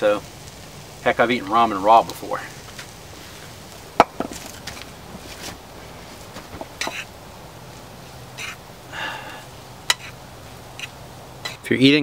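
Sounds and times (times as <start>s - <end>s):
fork scraping frying pan: 6.8s - 7.1s, 8.4s - 8.6s, 9.9s - 10.2s, 10.8s - 11.6s.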